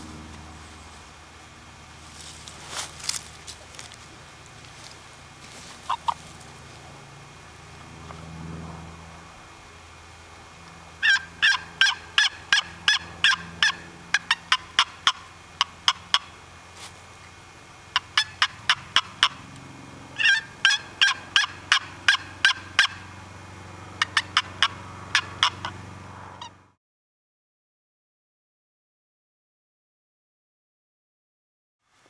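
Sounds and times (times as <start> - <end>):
turkey box call yelps: 5.5 - 6.4, 11.0 - 16.4, 17.9 - 19.4, 20.1 - 23.2, 24.0 - 26.6.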